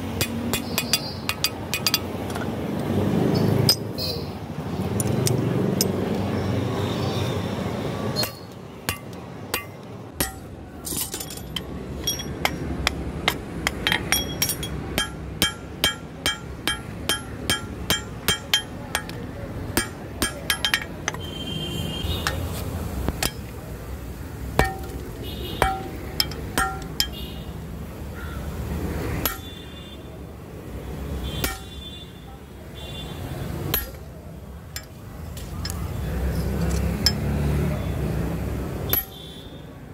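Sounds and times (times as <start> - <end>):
hammer ringing on anvil: 8.2 - 13.0, 13.7 - 19.2, 19.8 - 21.3, 24.6 - 25.0, 25.6 - 27.2, 29.2 - 29.6, 31.4 - 31.8, 39.0 - 39.2.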